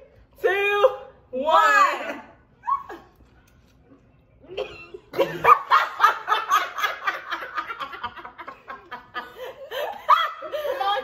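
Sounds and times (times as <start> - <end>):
women laughing: 4.4 - 11.0.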